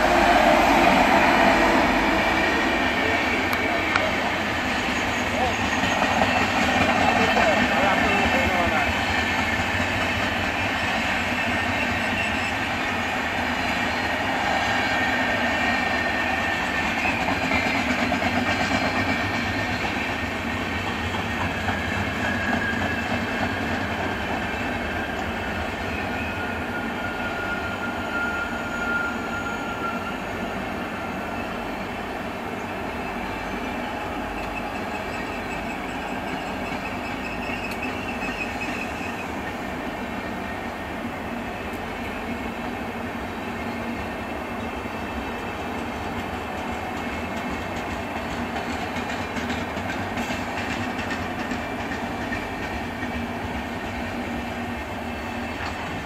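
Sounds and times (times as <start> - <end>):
high wheel squeals: 0.0 - 8.7, 10.6 - 14.1, 21.8 - 39.6
train wheels rumbling on rail: 0.0 - 56.0.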